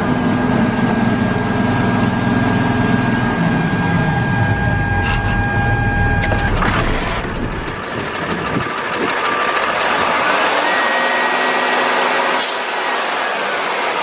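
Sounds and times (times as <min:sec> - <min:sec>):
high whine: 0:00.0 - 0:08.8
diesel engine idling: 0:00.0 - 0:10.0.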